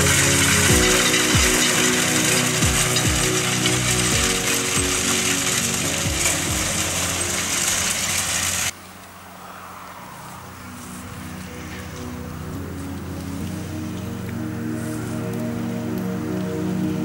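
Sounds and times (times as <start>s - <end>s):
fast mechanical rattle: 0.0s - 8.7s
tractor engine running under load: 0.0s - 9.0s.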